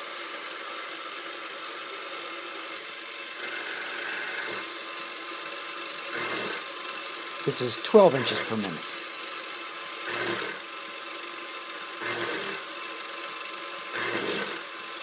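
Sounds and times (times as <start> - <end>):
milling machine spindle running: 6.0 - 7.5, 9.9 - 10.8, 11.7 - 12.7, 13.9 - 15.0
end mill cutting metal: 14.0 - 14.6.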